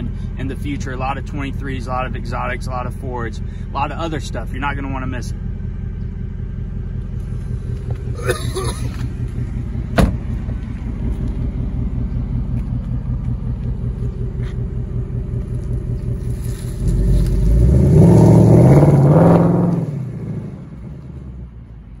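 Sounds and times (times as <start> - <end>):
car engine revving and accelerating: 7.0 - 22.0.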